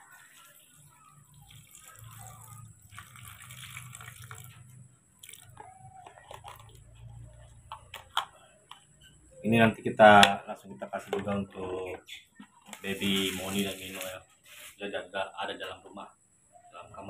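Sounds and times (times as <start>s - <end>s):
milk pouring into plastic jar: 0.0s - 7.1s.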